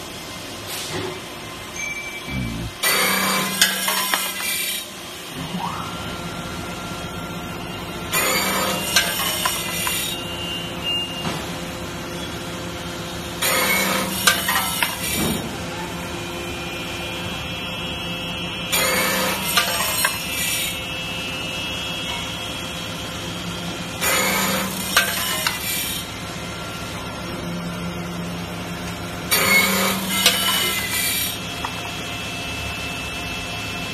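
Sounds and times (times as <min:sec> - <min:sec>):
machine motor humming: 0:02.3 - 0:03.7
harsh metal cutting noise: 0:02.3 - 0:05.0, 0:08.1 - 0:10.2, 0:13.4 - 0:15.3, 0:18.6 - 0:20.9, 0:23.9 - 0:26.2, 0:29.2 - 0:31.5.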